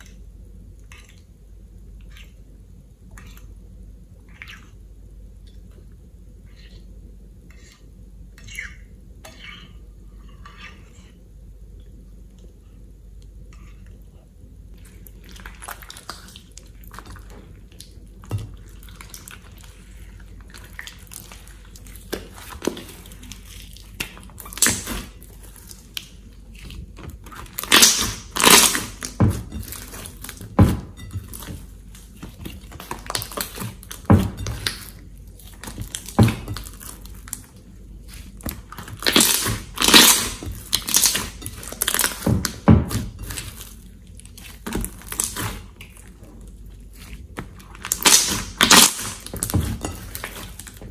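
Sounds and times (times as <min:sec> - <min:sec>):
slime squelching: 0:14.7 - 0:50.9.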